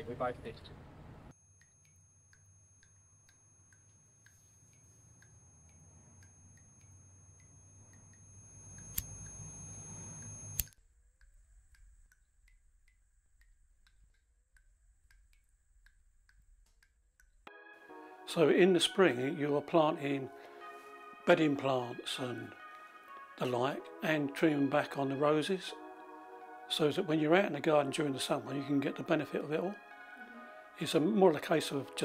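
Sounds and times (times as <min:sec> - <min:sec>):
thin high whine: 0:01.4 - 0:10.8
lighter flint wheel clicks: 0:08.8 - 0:09.4
steady ticking: 0:11.1 - 0:17.5.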